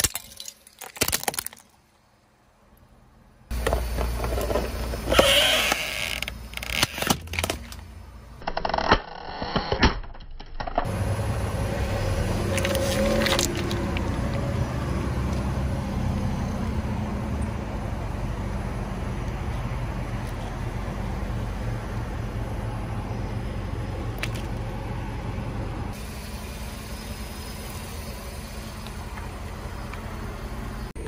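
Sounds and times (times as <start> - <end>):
plastic cracking under tyre: 0.8 - 1.8, 3.6 - 7.8, 8.4 - 10.9, 12.4 - 14.4
car running: 2.9 - 8.5, 10.8 - 31.0.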